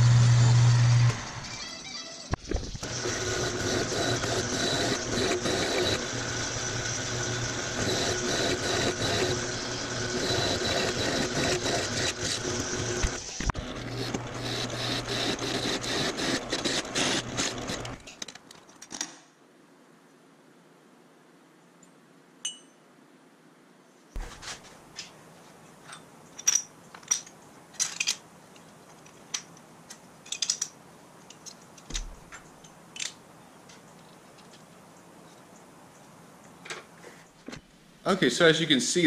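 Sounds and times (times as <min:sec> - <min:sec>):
drill press motor hum: 0:00.0 - 0:01.6, 0:02.8 - 0:18.0
motor spinning down: 0:00.0 - 0:01.6, 0:02.8 - 0:18.0
drill bit grinding through steel: 0:02.8 - 0:18.0.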